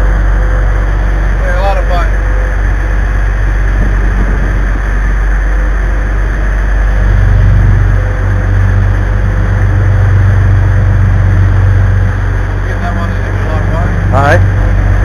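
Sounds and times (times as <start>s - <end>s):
boat engines droning: 0.0s - 15.0s
wake water rushing: 0.0s - 15.0s
wind rushing: 3.4s - 7.9s.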